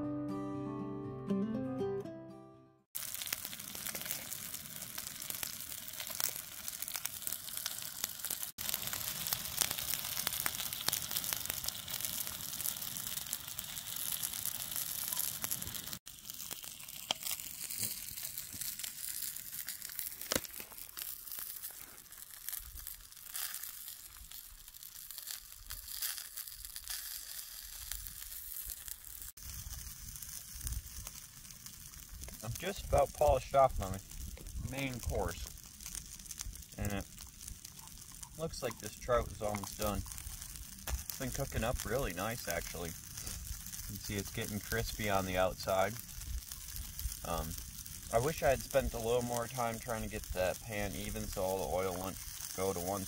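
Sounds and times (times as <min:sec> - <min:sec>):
fish frying in oil: 0:03.0 - 0:53.0.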